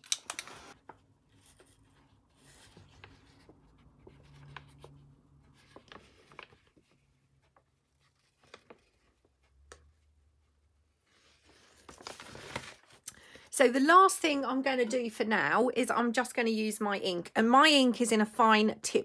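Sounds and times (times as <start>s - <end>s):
paper rustling: 0.0s - 13.0s.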